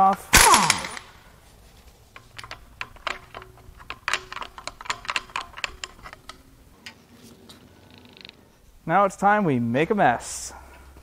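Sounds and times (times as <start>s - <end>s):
hand tools clicking on metal: 0.0s - 1.1s, 2.1s - 7.0s.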